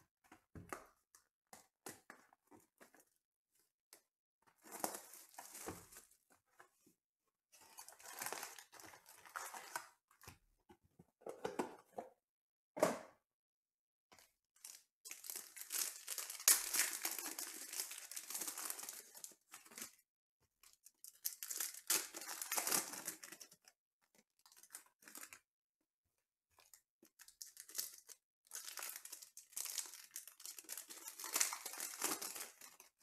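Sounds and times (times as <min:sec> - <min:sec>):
foil wrappers tearing and crinkling: 0:15.1 - 0:19.3, 0:21.3 - 0:23.3, 0:28.6 - 0:32.9.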